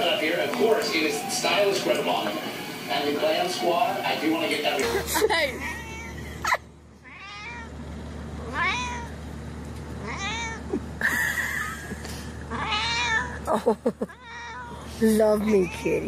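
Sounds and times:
kitten meowing: 8.5 - 9.1, 12.5 - 13.4.

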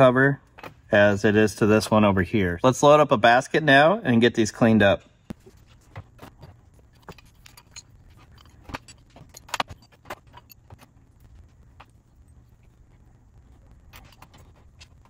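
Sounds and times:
metal parts clinking and clattering: 6.3 - 11.0.

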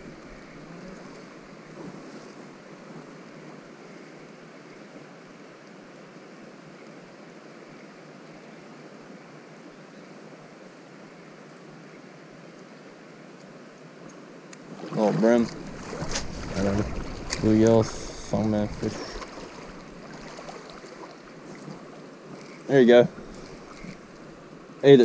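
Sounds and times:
creek water flowing: 0.0 - 25.0.

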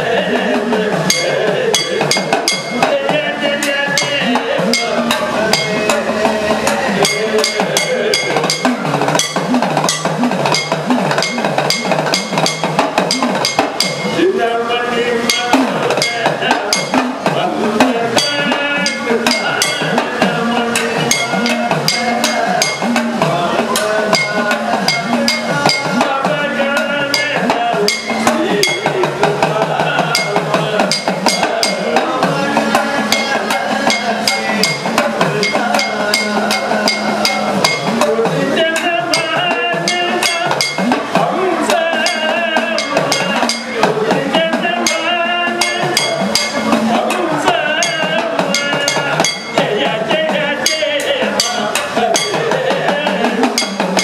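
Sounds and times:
man singing devotional melody: 0.0 - 8.8, 14.1 - 54.0
hourglass drum: 0.0 - 14.5, 15.1 - 54.0
gong struck rhythmically: 0.0 - 54.0.

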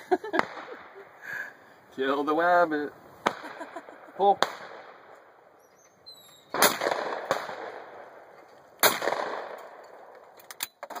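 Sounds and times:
shotgun shots with echo: 0.3 - 0.9, 3.2 - 5.1, 6.5 - 8.2, 8.8 - 9.8.

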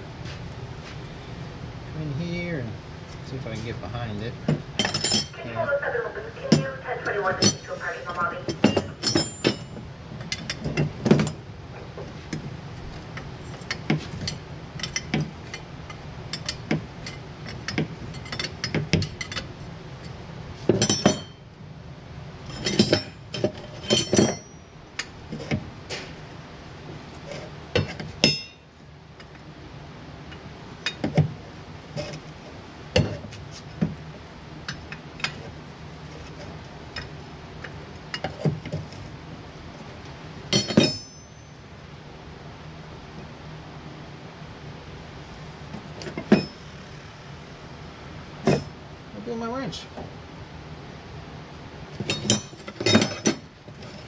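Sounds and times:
steady low hum: 0.0 - 54.0
wrench clinking against metal: 4.8 - 5.4, 8.5 - 10.9, 13.4 - 15.6, 16.3 - 20.2, 20.8 - 21.4, 22.5 - 25.2, 27.8 - 29.3, 40.5 - 41.6, 52.1 - 54.0.

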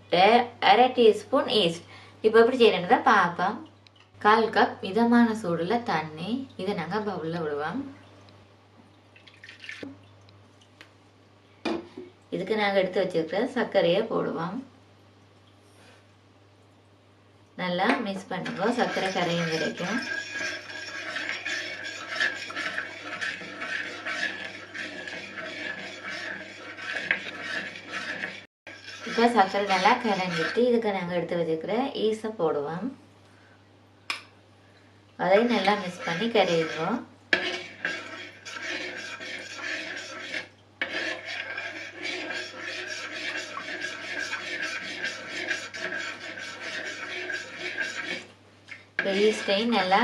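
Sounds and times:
utensil scraping a bowl: 18.3 - 30.8, 35.4 - 48.3, 49.0 - 50.0.

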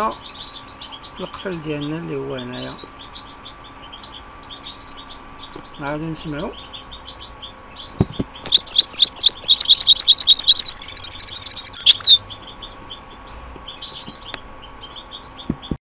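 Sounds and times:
faint bird chirping: 0.0 - 15.8
songbird song: 0.0 - 15.8.

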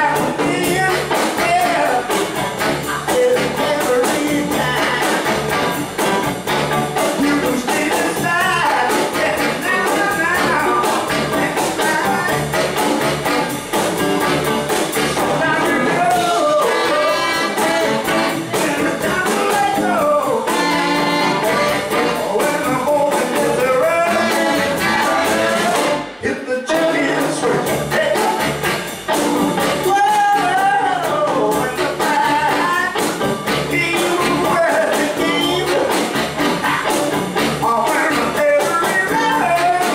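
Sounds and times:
electric guitar: 0.0 - 26.2, 27.3 - 39.9
drums: 0.0 - 39.9
upright bass: 0.0 - 39.9
saxophones: 8.4 - 22.8, 23.6 - 26.2.

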